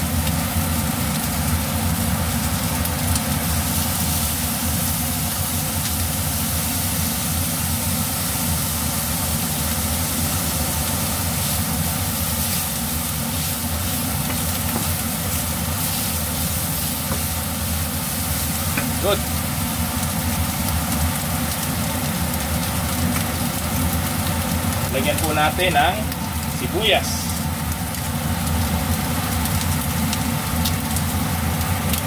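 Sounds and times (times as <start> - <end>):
chicken and pepper sizzling in pan: 0.0 - 32.0
steady low hum: 0.0 - 32.0
wooden spoon turning food: 9.0 - 21.7.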